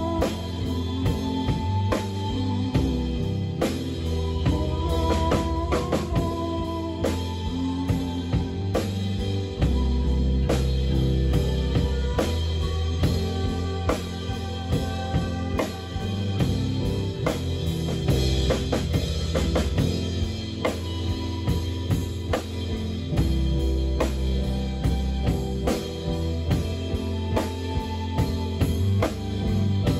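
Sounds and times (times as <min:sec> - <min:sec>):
drum kit beat: 0:00.0 - 0:29.9
live band music: 0:00.0 - 0:29.9.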